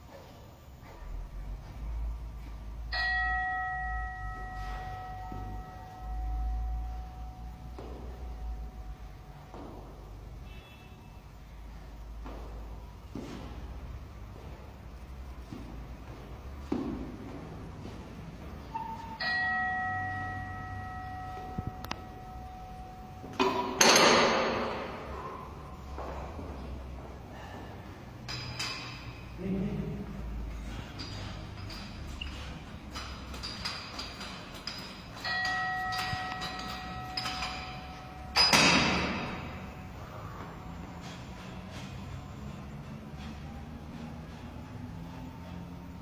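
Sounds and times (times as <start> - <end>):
metal bar clank and ring: 2.9 - 7.9, 18.7 - 25.5, 28.2 - 29.3, 31.0 - 39.9
metallic clank: 23.3 - 25.5, 28.2 - 29.4, 30.6 - 42.2.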